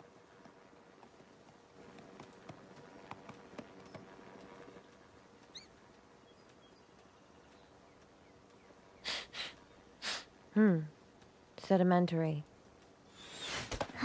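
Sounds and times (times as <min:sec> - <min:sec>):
light hoofsteps tapping: 0:00.1 - 0:09.9.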